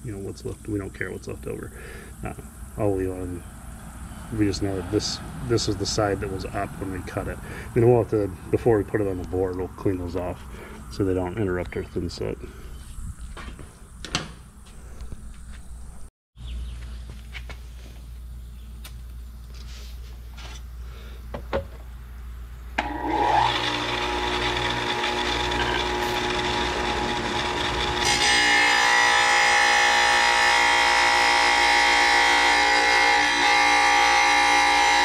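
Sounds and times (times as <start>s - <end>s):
saw blade grinding tile: 22.8s - 35.0s
tile saw motor whining: 22.8s - 35.0s.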